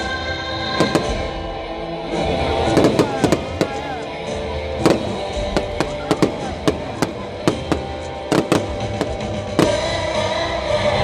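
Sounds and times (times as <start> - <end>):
music: 0.0 - 11.0
fireworks bangs: 0.8 - 1.5, 2.4 - 10.3.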